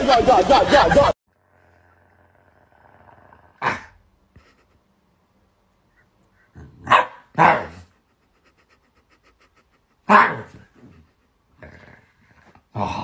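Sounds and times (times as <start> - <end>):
puppy barking: 6.8 - 7.8.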